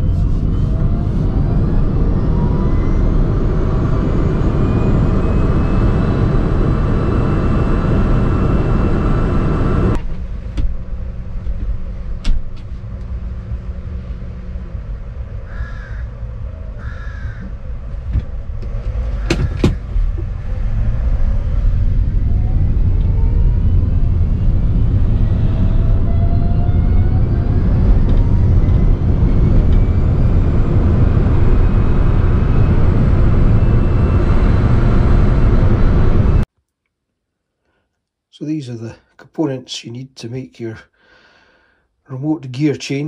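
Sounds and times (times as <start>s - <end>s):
electric motor whine: 0.0s - 10.0s, 18.6s - 36.4s
steady hum: 0.0s - 12.1s
tyre and road rumble: 0.0s - 36.4s
crow cawing: 15.5s - 16.2s, 16.8s - 17.5s.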